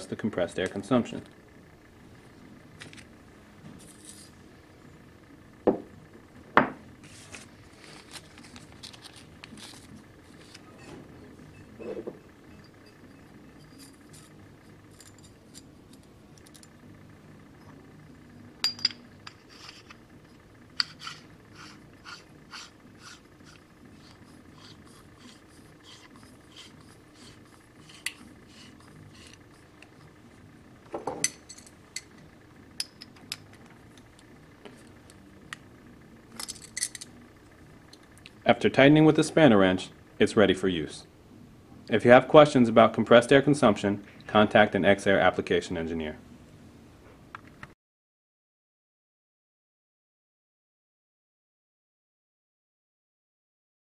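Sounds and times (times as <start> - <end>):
metal parts clicking and clinking: 36.3 - 37.1.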